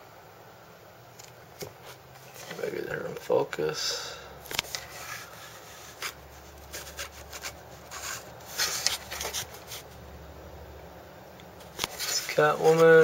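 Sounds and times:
hand rubbing on figure: 0:11.9 - 0:13.0.

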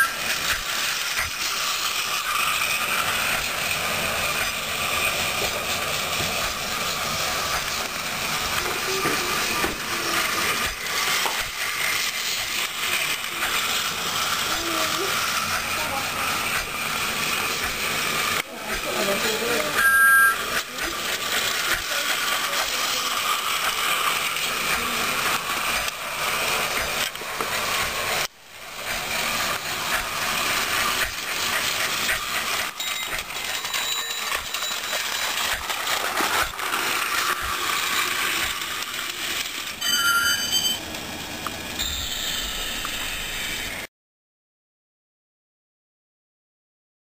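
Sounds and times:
plastic wheels rattling on track: 0:00.0 - 0:19.8, 0:20.4 - 0:39.8
toy train motor whirring: 0:00.0 - 0:43.9
high beep: 0:19.8 - 0:20.4, 0:39.8 - 0:40.8.

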